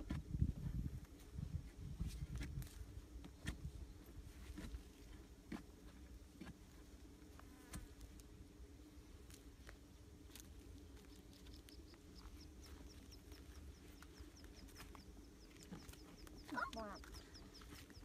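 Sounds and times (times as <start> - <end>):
digging in dry soil: 0.0 - 18.0
insects buzzing: 5.0 - 18.0.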